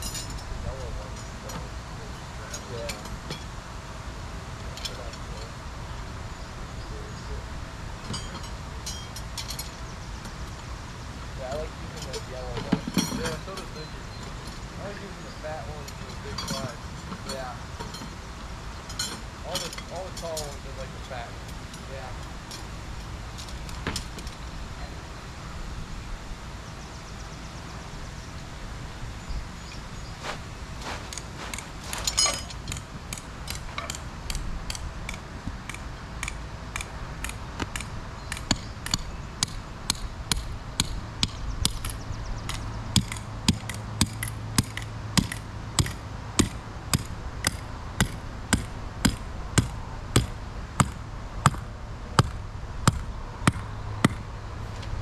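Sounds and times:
hammer striking stake: 0:30.2 - 0:51.6, 0:52.2 - 0:54.2.

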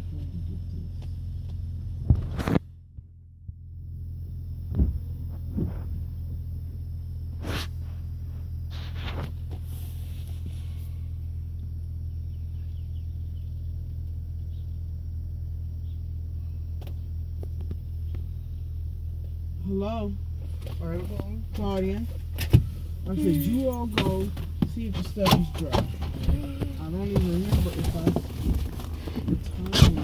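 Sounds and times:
car engine rumble inside cabin: 0:00.0 - 0:30.0.

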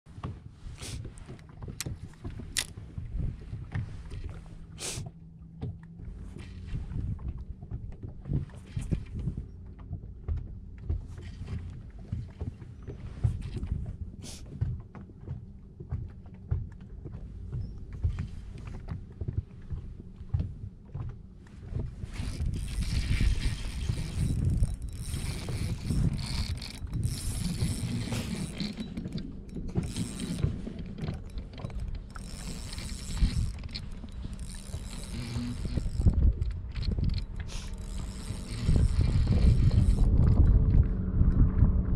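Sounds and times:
wind buffeting microphone: 0:06.0 - 0:14.2, 0:21.5 - 0:41.9
fishing reel whirring: 0:22.1 - 0:40.6.

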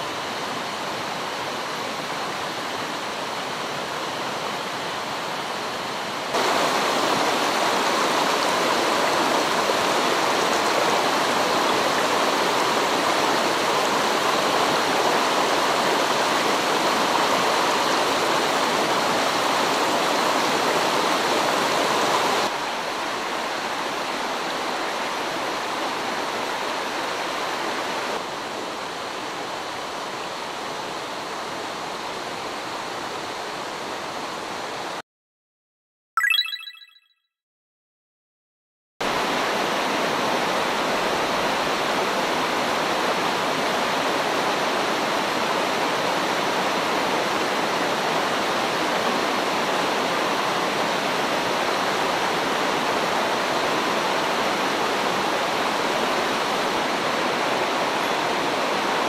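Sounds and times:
stream rushing over stones: 0:00.0 - 0:33.0.

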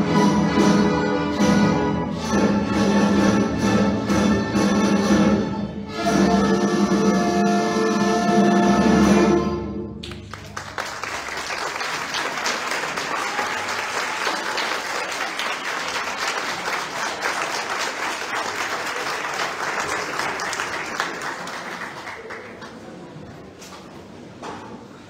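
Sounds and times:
audience applauding: 0:10.0 - 0:23.2.

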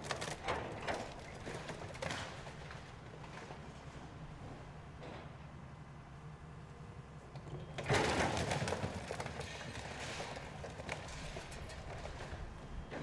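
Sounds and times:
debris cracking and crunching: 0:00.0 - 0:03.5, 0:07.8 - 0:12.4.

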